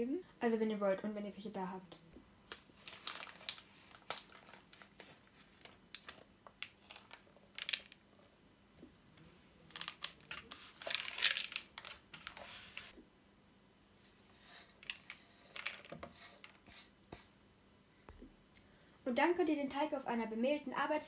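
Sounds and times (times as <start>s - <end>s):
rustling and scraping dough: 2.6s - 13.0s, 14.0s - 17.4s.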